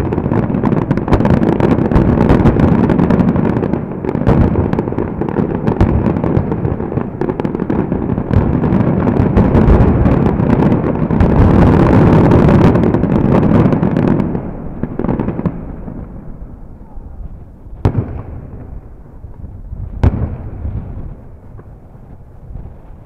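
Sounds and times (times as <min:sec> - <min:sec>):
fireworks bursting: 0:00.0 - 0:23.0
loud firework bangs: 0:00.0 - 0:23.0.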